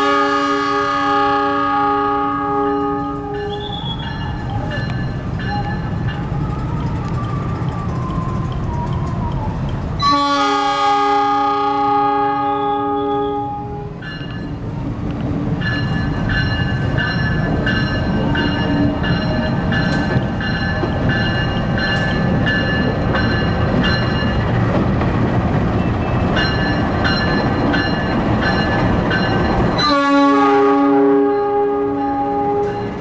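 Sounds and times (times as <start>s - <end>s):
locomotive horn blast: 0.0s - 4.0s, 10.0s - 14.0s, 29.8s - 33.0s
passing train rumble: 0.0s - 33.0s
level crossing warning bell: 2.6s - 10.2s, 13.0s - 14.8s, 15.6s - 24.7s, 26.2s - 33.0s.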